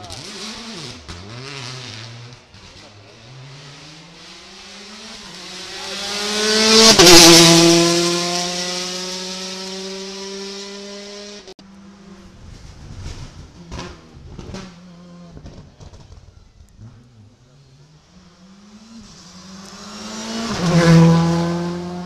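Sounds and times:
rally car engine passing: 0.0s - 22.0s.

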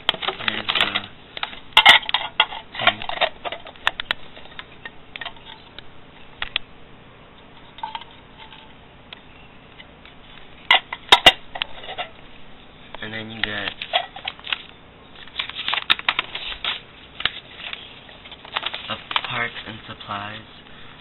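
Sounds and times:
plastic packaging crackling: 0.0s - 1.5s, 13.5s - 19.9s.

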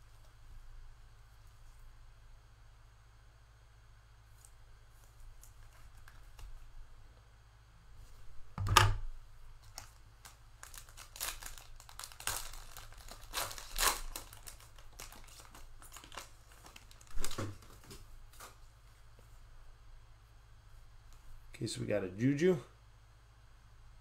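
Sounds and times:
wrapper crinkling and tearing: 9.6s - 18.6s.

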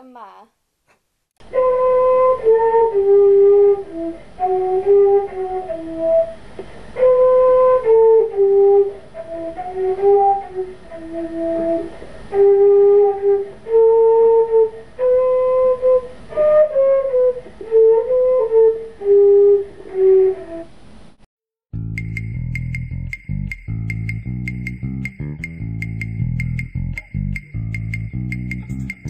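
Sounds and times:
solo flute melody: 1.4s - 6.4s, 7.0s - 20.7s.

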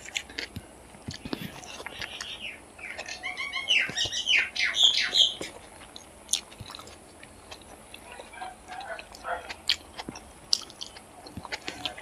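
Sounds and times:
chewing clicks and smacks: 0.0s - 3.3s, 5.4s - 12.0s
bird squawky chirping: 1.9s - 5.5s.

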